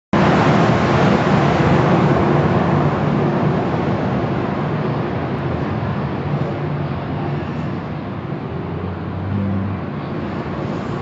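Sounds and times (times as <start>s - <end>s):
car wash machinery rushing: 0.2s - 11.0s.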